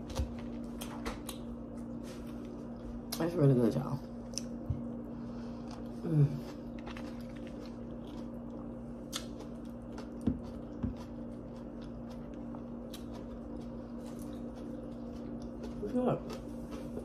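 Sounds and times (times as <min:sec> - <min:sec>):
steady low hum: 0:00.0 - 0:17.0
chewing crunchy fried shrimp: 0:04.1 - 0:17.0.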